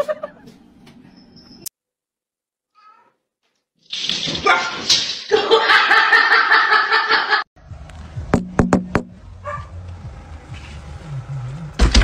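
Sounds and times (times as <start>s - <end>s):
person laughing loudly: 5.3s - 7.4s.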